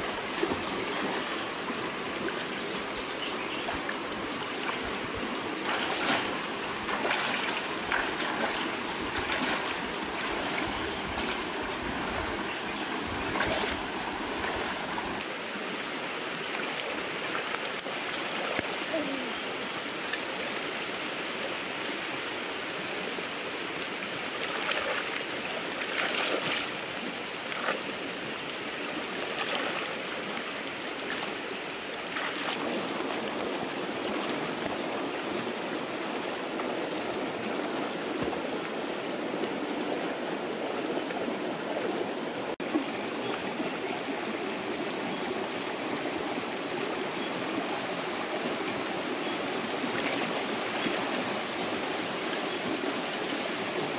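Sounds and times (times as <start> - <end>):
shallow stream running over rocks: 0.0 - 53.9
person wading and splashing: 5.6 - 15.0, 24.4 - 28.1, 29.0 - 34.6.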